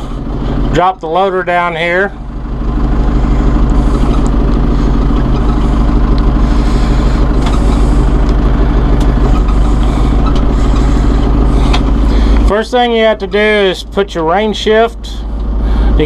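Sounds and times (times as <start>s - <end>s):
tractor diesel engine throbbing: 0.0s - 16.0s
front loader hydraulics lowering: 3.2s - 12.5s.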